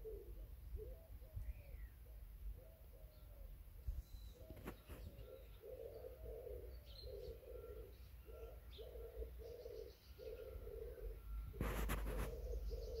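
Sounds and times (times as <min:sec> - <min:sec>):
dove cooing: 0:00.0 - 0:13.0
small birds chirping: 0:00.0 - 0:13.0.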